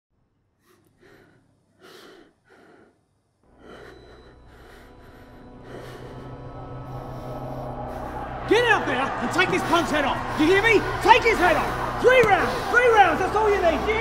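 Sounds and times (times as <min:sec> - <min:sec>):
person breathing heavily: 0:00.5 - 0:08.5.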